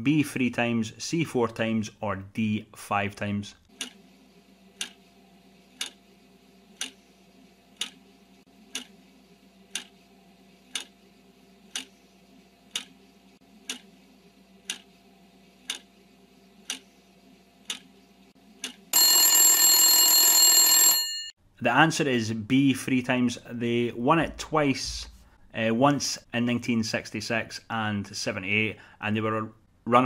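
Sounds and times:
clock ticking: 3.7 - 4.0, 4.8 - 5.0, 5.8 - 6.0, 6.8 - 7.0, 7.8 - 8.0, 8.7 - 8.9, 9.7 - 9.9, 10.7 - 11.0, 11.7 - 11.9, 12.7 - 12.9, 13.7 - 13.9, 14.7 - 14.9, 15.7 - 15.9, 16.6 - 16.8
alarm bell ringing: 19.0 - 21.3.

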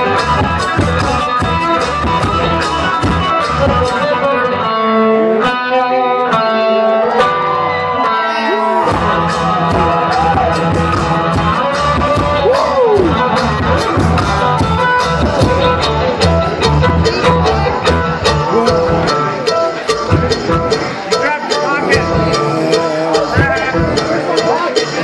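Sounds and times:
funk guitar: 0.0 - 25.0
drum beat: 8.7 - 25.0.

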